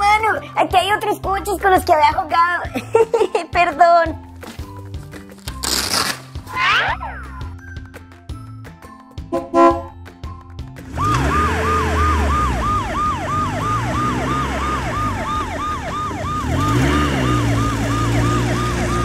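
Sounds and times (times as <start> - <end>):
toy police siren wailing: 11.0 - 19.0.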